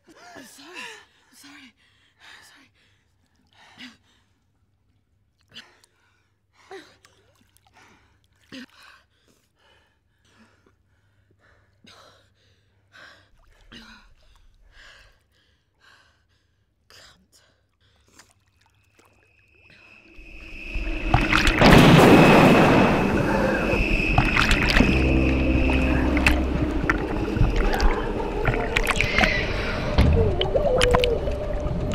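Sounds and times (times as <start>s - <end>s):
pool water lapping: 6.8s - 9.4s, 18.0s - 31.9s
swimmer splashing water: 20.0s - 31.9s
steady high tone: 20.2s - 31.9s.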